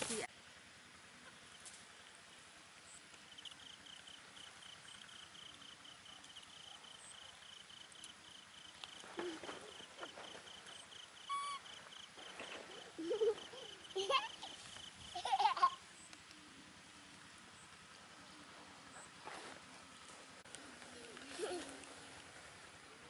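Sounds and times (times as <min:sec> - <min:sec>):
insect trilling: 0:01.4 - 0:15.2.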